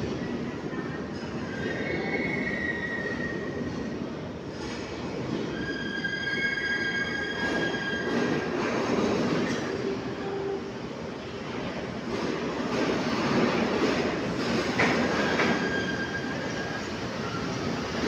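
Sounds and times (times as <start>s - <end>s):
metro train rumbling on track: 0.0s - 18.0s
high-pitched wheel squeal: 15.3s - 17.4s.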